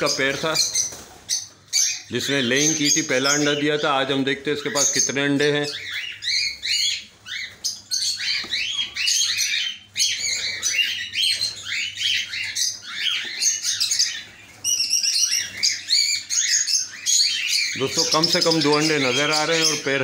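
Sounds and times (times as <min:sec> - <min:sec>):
cockatiels chirping and calling: 0:00.0 - 0:20.0.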